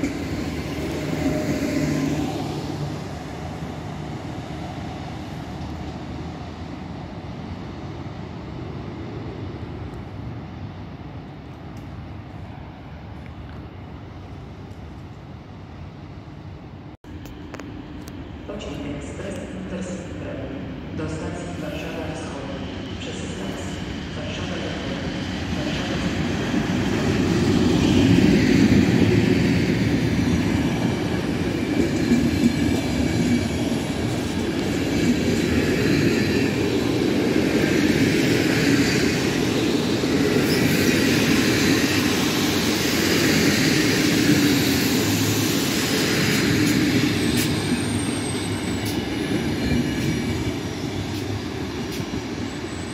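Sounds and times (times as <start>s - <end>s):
train wheels rumbling on rail: 0.0s - 52.9s.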